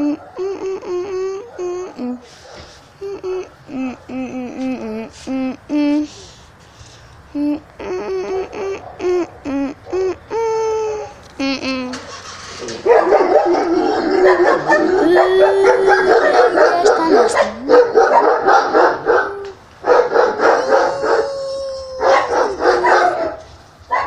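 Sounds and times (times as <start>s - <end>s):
dogs barking and howling: 12.7s - 24.0s.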